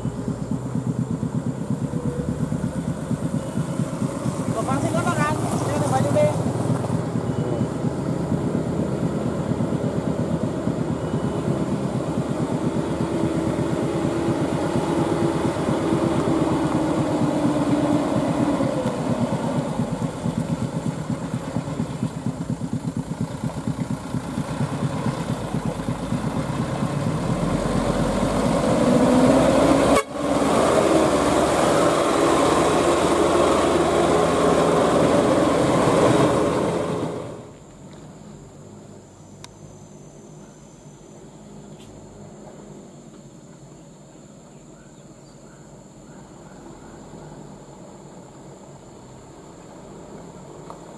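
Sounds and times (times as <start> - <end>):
diesel truck engine working hard: 0.0 - 42.8.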